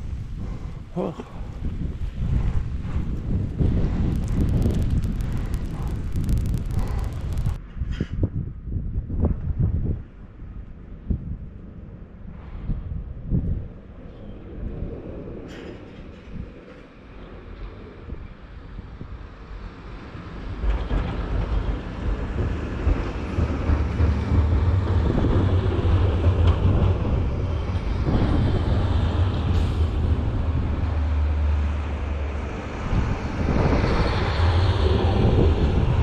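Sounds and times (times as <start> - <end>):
diesel truck engine rumbling: 3.8 - 7.6.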